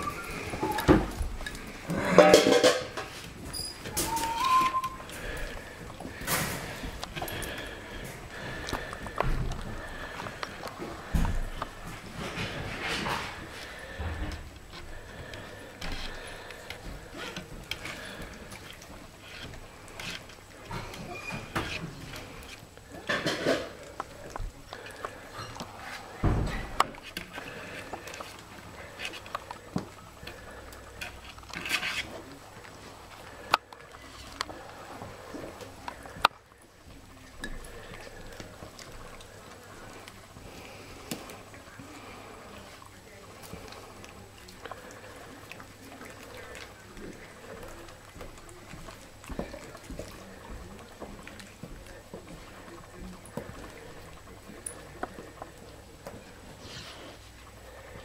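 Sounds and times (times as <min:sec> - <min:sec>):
puppy whimpers: 0:00.0 - 0:01.1, 0:03.6 - 0:05.1
puppies lapping and smacking: 0:00.0 - 0:58.0.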